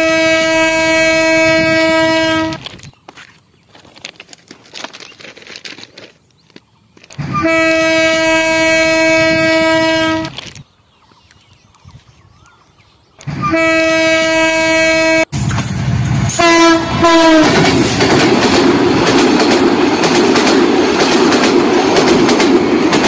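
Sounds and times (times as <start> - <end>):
train horn blasts: 0.0 - 2.7, 7.2 - 10.4, 13.2 - 15.4, 16.3 - 17.8.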